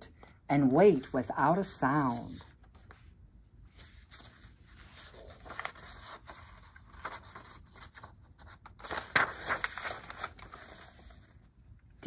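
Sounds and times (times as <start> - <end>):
page turning: 3.8 - 11.4
paper pages rustling: 3.8 - 11.4.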